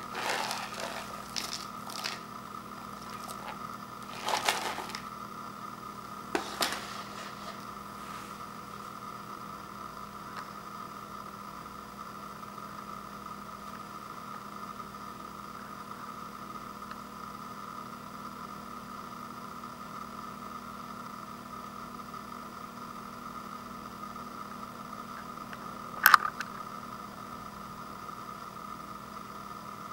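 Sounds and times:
faint high whine: 0.0 - 10.9
steady background hum: 0.0 - 18.2, 22.9 - 29.9.

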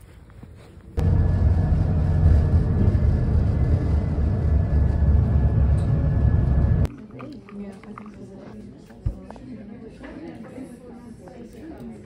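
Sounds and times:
low rumble of moving bus: 1.0 - 6.9.

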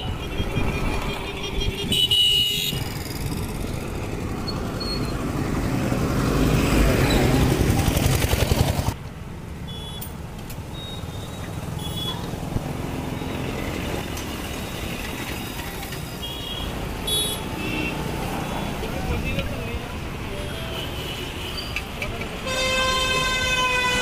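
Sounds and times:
road traffic noise: 0.0 - 24.0
vehicle passing close by: 2.7 - 9.0.

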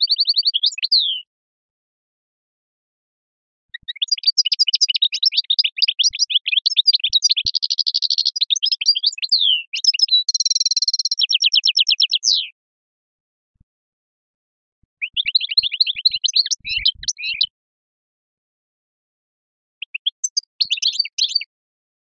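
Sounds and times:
songbird singing: 0.0 - 1.2, 3.7 - 12.6, 15.0 - 17.6, 19.8 - 21.5.

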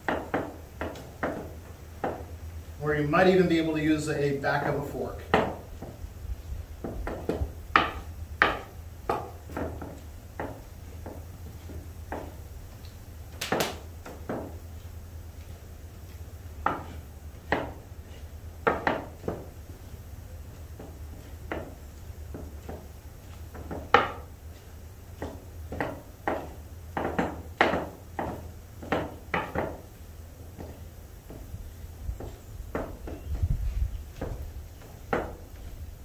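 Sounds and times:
wooden pestle knocking in bowl: 0.0 - 2.3, 5.3 - 6.0, 6.8 - 12.4, 13.4 - 14.6, 16.6 - 17.8, 18.6 - 19.5, 20.8 - 22.9, 23.5 - 24.3, 25.2 - 29.9.

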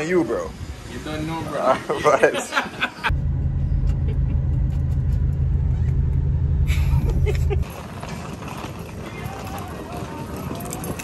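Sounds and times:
car cabin drone: 3.1 - 7.6.

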